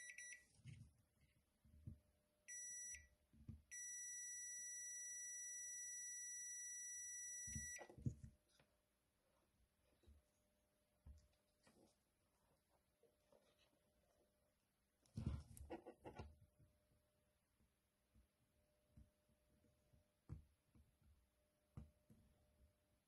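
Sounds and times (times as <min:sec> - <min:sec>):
multimeter continuity beeps: 0:00.0 - 0:00.4, 0:02.5 - 0:03.1, 0:03.7 - 0:07.9.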